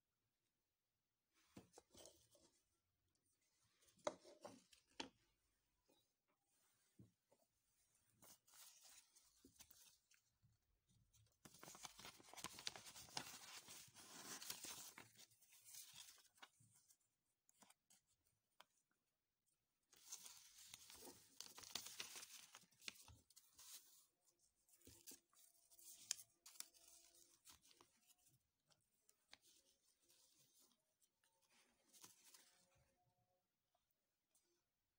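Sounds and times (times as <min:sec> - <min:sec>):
paper and card rustling: 0:11.4 - 0:16.6, 0:20.0 - 0:24.1.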